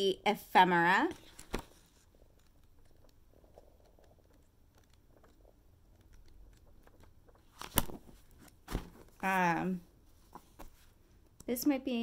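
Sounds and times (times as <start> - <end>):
paper pages being flipped: 1.1 - 9.4, 10.1 - 11.0.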